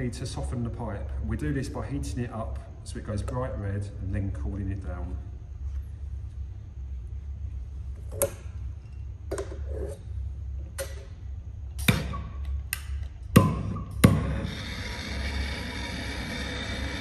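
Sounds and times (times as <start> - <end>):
pipe and blowtorch handling clicks: 11.8 - 13.3.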